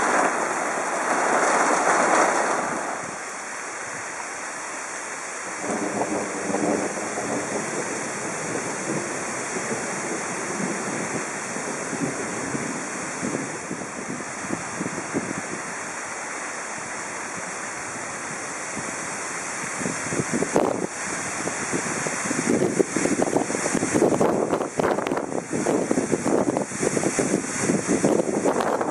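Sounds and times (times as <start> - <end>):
wind roaring through trees: 0.0 - 28.9
wind buffeting microphone: 5.6 - 15.8, 18.2 - 28.9.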